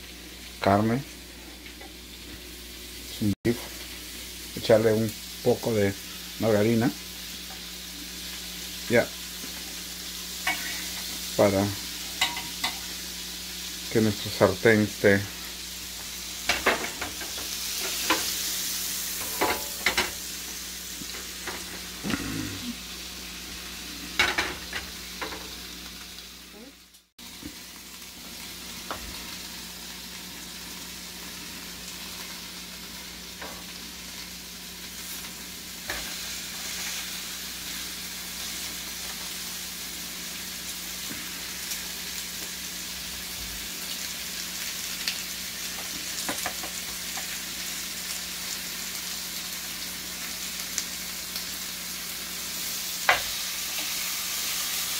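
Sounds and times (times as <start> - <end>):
margarine sizzling in a pan: 0.0 - 54.9.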